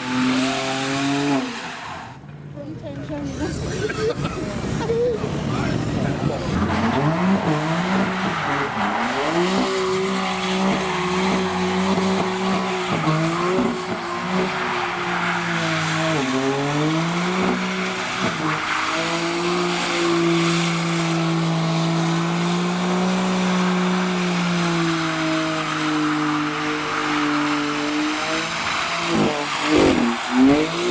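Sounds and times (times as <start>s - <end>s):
car engine revving hard: 0.0s - 1.8s, 4.6s - 30.9s
tyres screeching: 4.6s - 21.4s, 24.5s - 30.9s.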